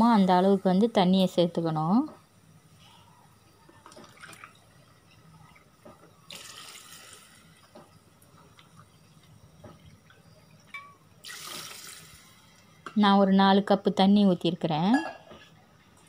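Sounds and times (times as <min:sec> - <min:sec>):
water pouring into pot: 0:03.7 - 0:09.1, 0:10.0 - 0:12.6.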